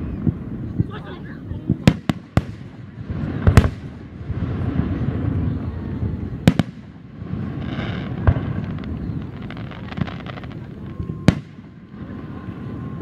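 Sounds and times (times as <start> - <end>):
faint firework pops: 1.8 - 5.3, 6.4 - 12.2.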